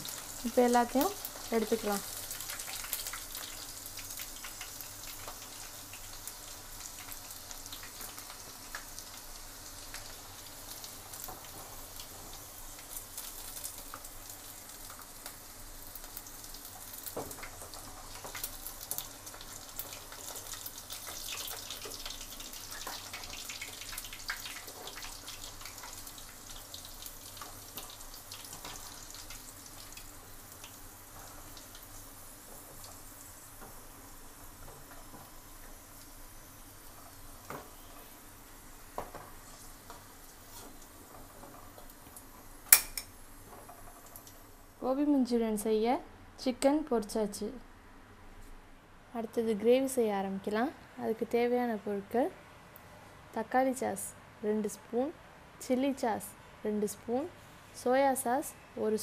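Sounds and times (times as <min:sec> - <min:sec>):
chicken deep-frying in oil: 0:00.0 - 0:45.0.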